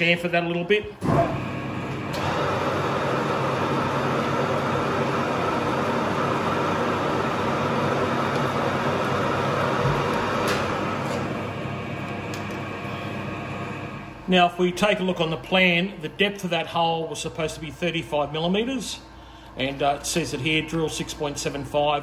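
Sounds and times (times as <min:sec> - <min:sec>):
metal lathe running: 0:01.4 - 0:14.3.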